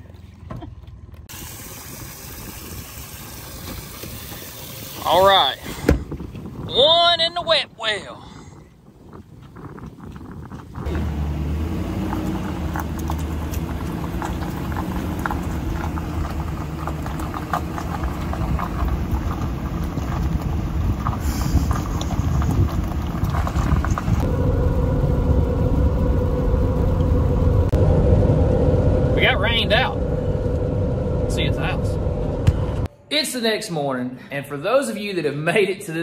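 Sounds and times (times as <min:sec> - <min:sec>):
road and engine noise: 0:00.0 - 0:32.9
steady hum: 0:24.2 - 0:32.9.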